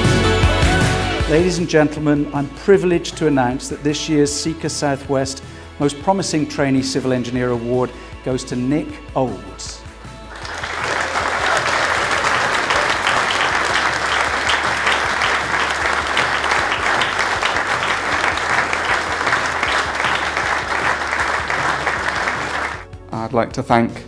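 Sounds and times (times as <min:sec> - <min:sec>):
people applauding: 0:10.3 - 0:22.8.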